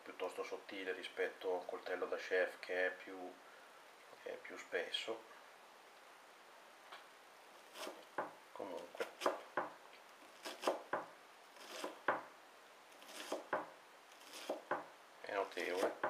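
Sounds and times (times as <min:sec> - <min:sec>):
knife chopping on wooden board: 0:07.7 - 0:08.4, 0:09.0 - 0:09.8, 0:10.4 - 0:12.3, 0:13.0 - 0:14.9, 0:15.6 - 0:16.0.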